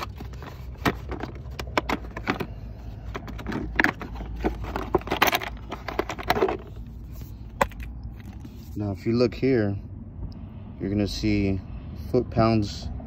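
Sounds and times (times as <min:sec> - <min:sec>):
tool clicks and rattles in case: 0:00.0 - 0:08.5.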